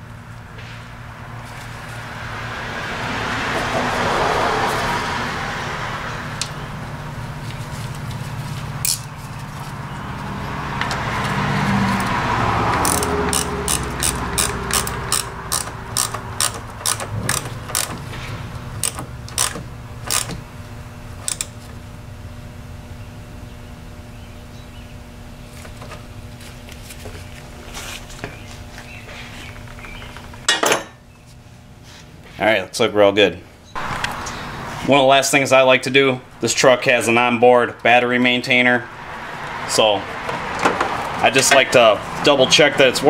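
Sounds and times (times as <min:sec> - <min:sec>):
ratchet wrench clicking: 0:08.8 - 0:09.1, 0:12.8 - 0:18.0, 0:18.8 - 0:20.4, 0:21.2 - 0:21.5
broad rushing noise: 0:33.8 - 0:43.0.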